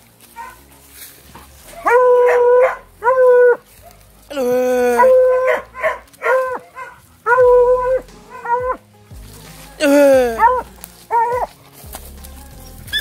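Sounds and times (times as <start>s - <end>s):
dog baying: 0.3s - 0.7s, 1.7s - 8.9s, 9.9s - 11.6s.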